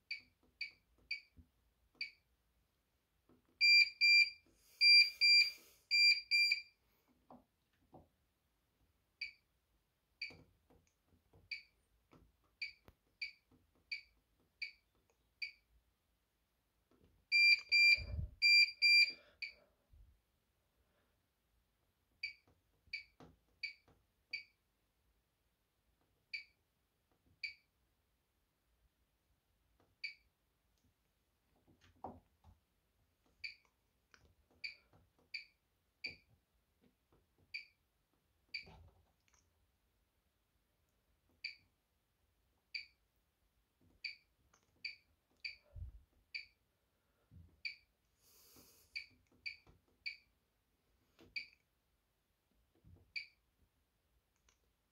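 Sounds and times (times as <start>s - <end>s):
washing machine control panel beeps: 0.1s - 1.4s, 2.0s - 2.2s, 3.6s - 6.7s, 9.2s - 9.4s, 11.5s - 11.8s, 12.6s - 15.6s, 17.3s - 19.6s, 22.2s - 24.6s, 26.3s - 26.6s, 27.4s - 27.7s, 30.0s - 30.3s, 33.4s - 33.7s, 34.6s - 36.3s, 37.5s - 37.8s, 41.4s - 41.7s, 42.8s - 43.0s, 44.0s - 45.7s, 46.4s - 46.6s, 47.6s - 47.9s, 49.0s - 50.3s, 51.4s - 51.6s, 53.1s - 53.4s.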